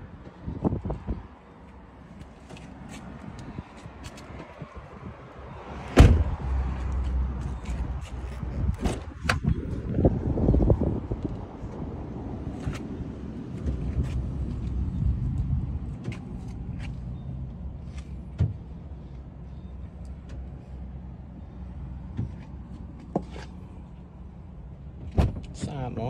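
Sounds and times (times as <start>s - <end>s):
steady low rumble: 3.0s - 23.0s.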